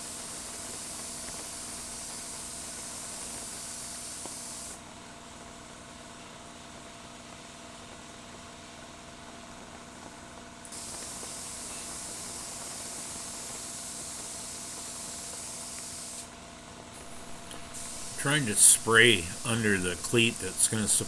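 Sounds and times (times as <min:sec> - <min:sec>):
paint spray gun hissing: 0:00.0 - 0:04.8, 0:10.7 - 0:16.3, 0:17.0 - 0:21.0
steady background hum: 0:15.9 - 0:21.0.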